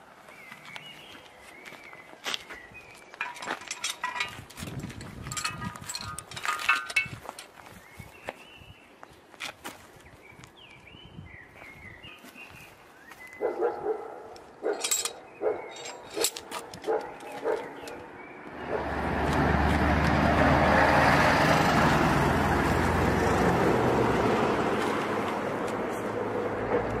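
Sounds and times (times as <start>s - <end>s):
metal grate clanking: 3.2s - 7.4s, 14.6s - 18.0s.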